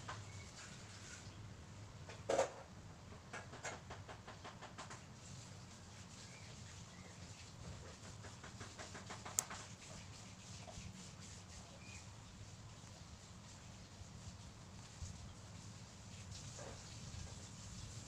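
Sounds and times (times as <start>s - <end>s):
faint bird chirps: 11.6s - 12.2s.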